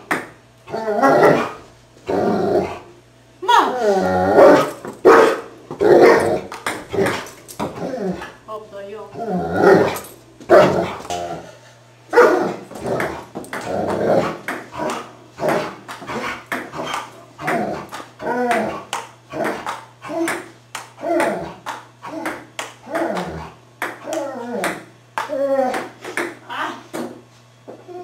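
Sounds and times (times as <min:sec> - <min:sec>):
dog barking and whining: 0:00.7 - 0:02.8, 0:03.5 - 0:08.4, 0:09.1 - 0:11.4, 0:12.1 - 0:20.3.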